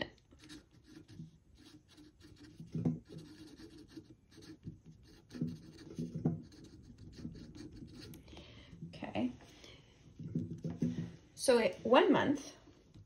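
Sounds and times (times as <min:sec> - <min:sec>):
marker scratching on paper: 0:00.4 - 0:08.2.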